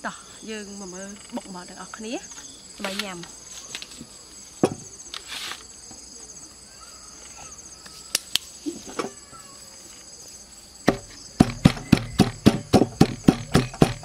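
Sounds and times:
insects chirping: 0:00.0 - 0:14.0
pestle pounding in wooden mortar: 0:10.8 - 0:14.0
single knocks: 0:10.8 - 0:14.0.

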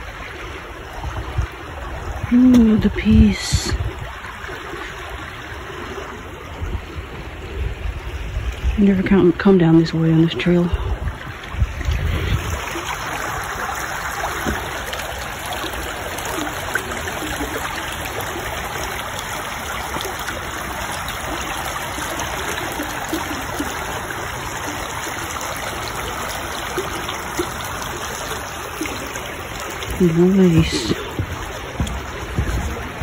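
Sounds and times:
creek flowing water: 0:00.0 - 0:33.0.

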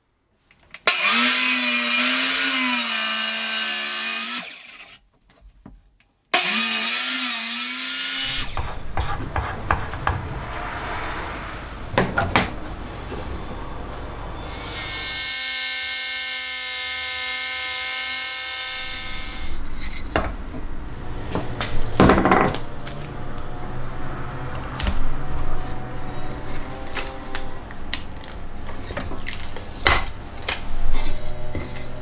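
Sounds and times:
circular saw whining: 0:06.4 - 0:20.1.

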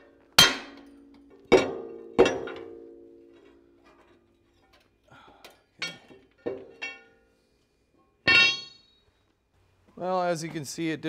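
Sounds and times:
metal bar clanking on pin: 0:08.3 - 0:08.8.

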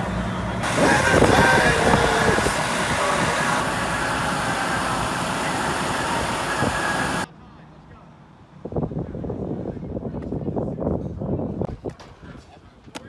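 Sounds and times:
bus engine idling: 0:00.0 - 0:07.3
people's voices: 0:00.6 - 0:08.2.

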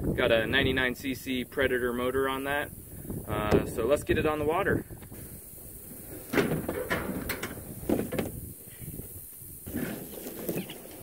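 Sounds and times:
plastic kayak knocks and scrapes: 0:06.3 - 0:08.4.

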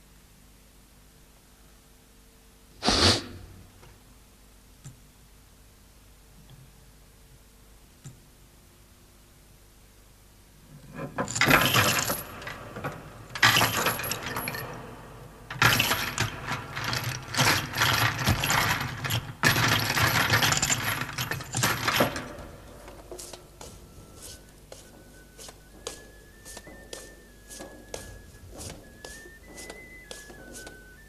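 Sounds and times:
metallic jangling and clinking: 0:11.2 - 0:22.7.

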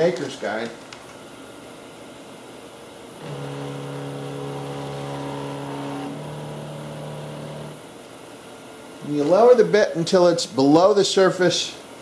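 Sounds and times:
drive motor whining: 0:03.2 - 0:07.8.

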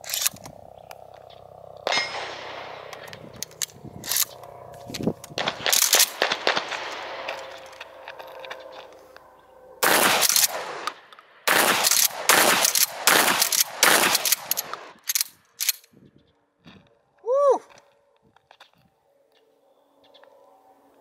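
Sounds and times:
shotgun shots with echo: 0:01.9 - 0:03.3, 0:05.4 - 0:07.6, 0:09.8 - 0:15.0.

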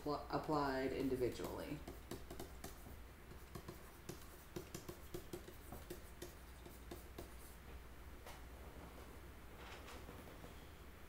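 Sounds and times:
stylus tapping on tablet screen: 0:00.9 - 0:07.4.

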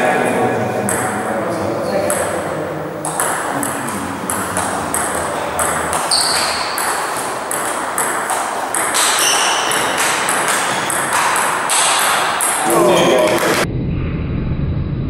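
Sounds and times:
table tennis ball clicking: 0:02.0 - 0:13.6.

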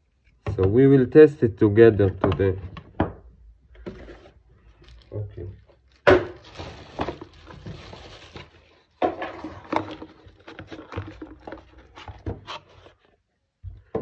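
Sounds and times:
cardboard box scraping on wood: 0:09.2 - 0:13.0.

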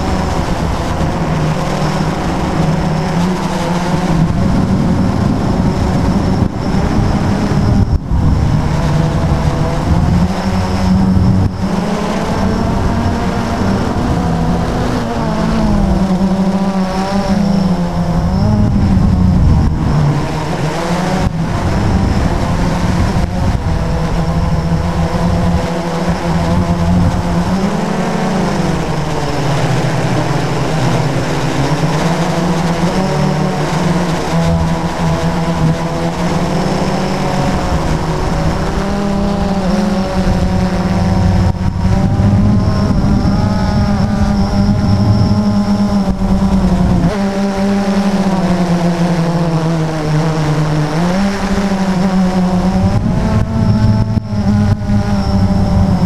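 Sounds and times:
wind rushing: 0:00.0 - 0:16.3, 0:34.6 - 0:47.1
model plane motor droning: 0:00.0 - 0:56.0.

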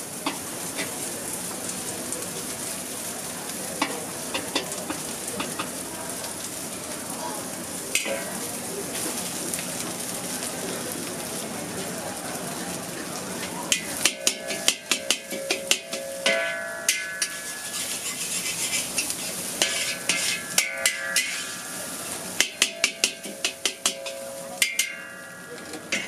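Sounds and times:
noodles sizzling in a wok: 0:00.0 - 0:26.0
metal spatula clanging on wok: 0:03.8 - 0:05.7, 0:07.9 - 0:08.4, 0:13.7 - 0:26.0.

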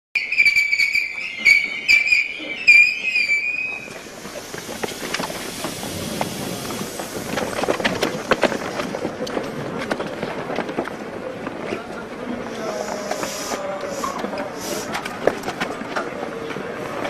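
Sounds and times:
whistle blasts: 0:00.2 - 0:04.3
crowd shuffling and knocking: 0:00.9 - 0:17.0.

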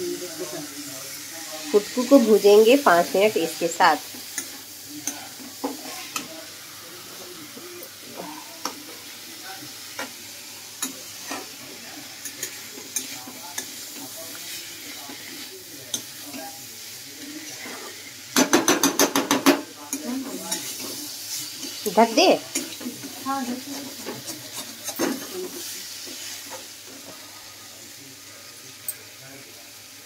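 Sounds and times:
food sizzling in a pan: 0:00.0 - 0:30.0
metal spatula scraping a pan: 0:01.8 - 0:06.3, 0:17.4 - 0:18.2, 0:19.9 - 0:27.2.

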